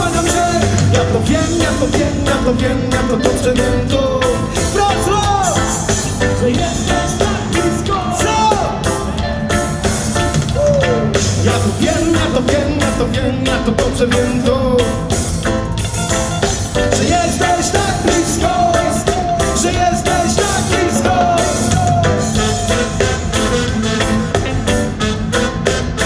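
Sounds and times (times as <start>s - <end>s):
live reggae band playing: 0.0s - 26.0s.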